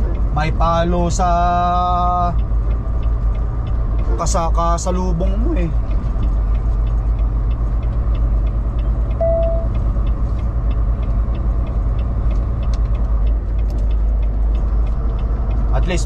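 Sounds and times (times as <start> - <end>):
truck engine and road rumble: 0.0 - 16.0
short beep: 9.2 - 9.7.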